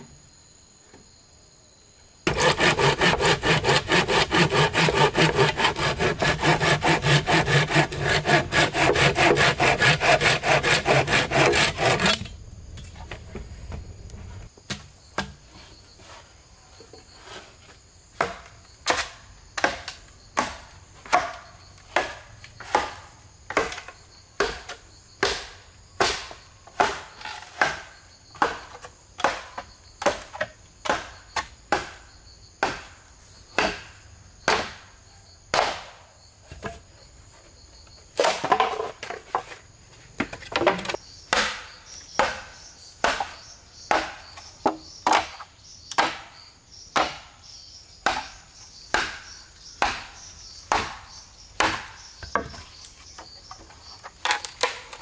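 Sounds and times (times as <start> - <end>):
machete chopping bamboo: 2.3 - 12.3, 18.2 - 33.0, 33.6 - 34.9, 35.5 - 36.0, 40.2 - 46.3, 47.0 - 47.4, 48.0 - 52.6, 54.2 - 55.0.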